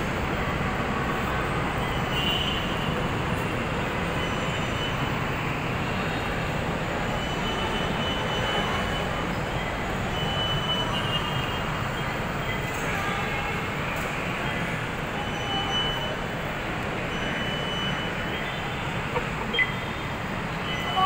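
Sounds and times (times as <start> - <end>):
high wheel squeal: 14.4 - 21.0.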